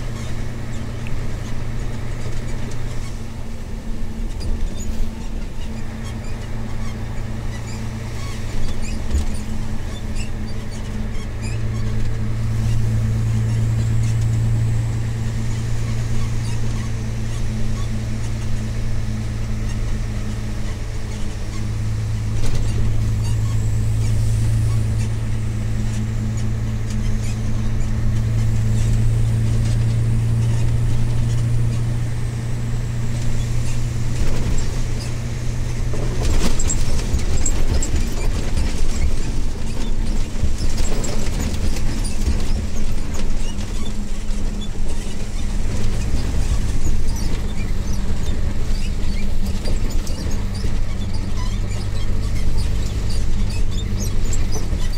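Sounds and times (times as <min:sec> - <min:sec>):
road and tyre noise: 0:00.0 - 0:54.9
truck engine drone: 0:00.0 - 0:54.9
cab knocks and rattles: 0:32.9 - 0:54.9.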